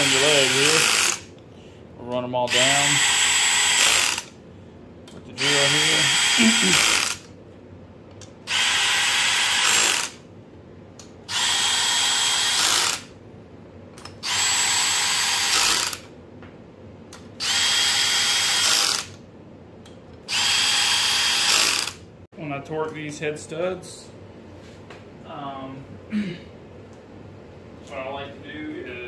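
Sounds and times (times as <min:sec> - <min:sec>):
cordless drill motor whine: 0:00.0 - 0:01.2, 0:02.5 - 0:04.3, 0:05.4 - 0:07.3, 0:08.5 - 0:10.2, 0:11.3 - 0:13.1, 0:14.2 - 0:16.1, 0:17.4 - 0:19.2, 0:20.3 - 0:22.0.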